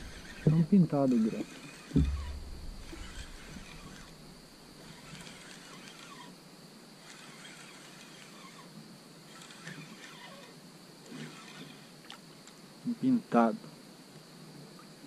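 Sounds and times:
steady high hiss: 0.0s - 15.0s.

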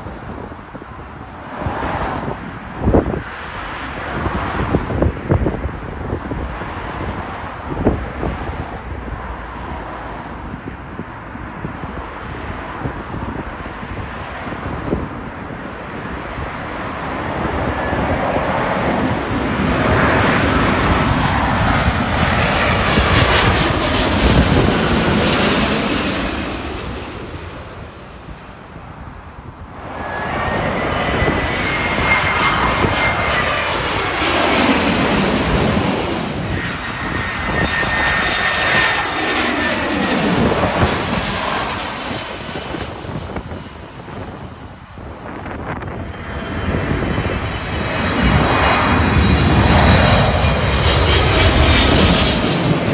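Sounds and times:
jet airliner passing overhead: 0.0s - 52.9s
jet engine whine falling in pitch: 11.9s - 52.9s.

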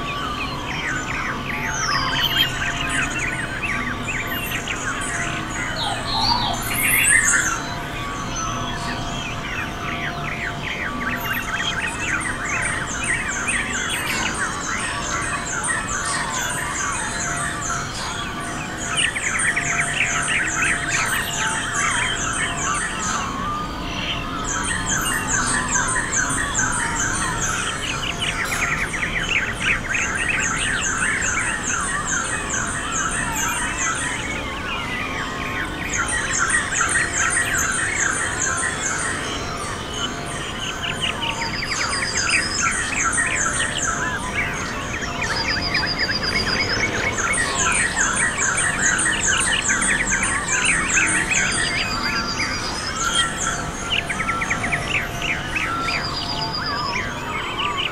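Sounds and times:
birds squawking and chattering: 0.0s - 57.9s
high rapid bird trill: 40.8s - 56.2s.

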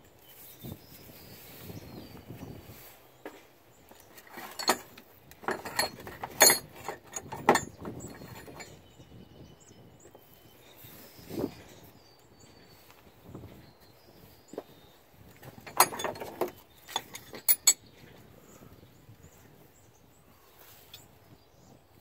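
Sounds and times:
hand tools knocking on engine parts: 4.2s - 8.7s, 15.4s - 17.8s.

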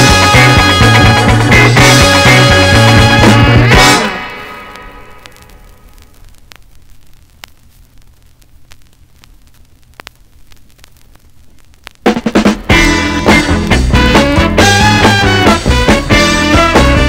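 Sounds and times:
full band playing: 0.0s - 4.2s, 12.7s - 17.0s
song playing: 0.0s - 5.3s, 12.1s - 17.0s
record surface hiss: 0.0s - 17.0s
record clicks and pops: 1.5s - 14.2s
low steady hum: 4.2s - 12.1s.

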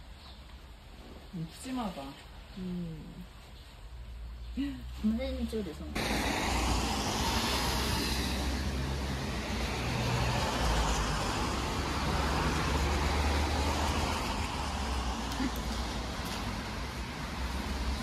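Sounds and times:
broad hiss: 6.0s - 17.9s.

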